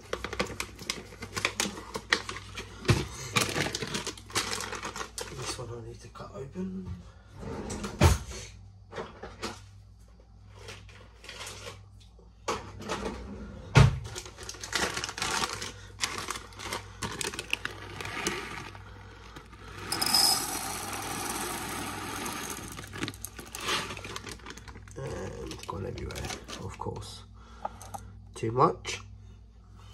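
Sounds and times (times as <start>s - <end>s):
plastic bag crinkling: 0.0s - 5.5s, 14.1s - 26.8s
peppercorns pouring and rattling: 14.4s - 26.6s.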